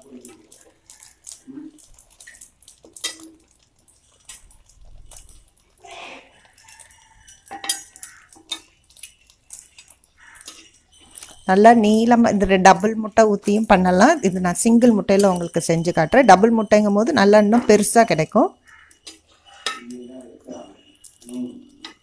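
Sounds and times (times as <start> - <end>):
spatulas scraping on griddle: 18.7 - 22.0.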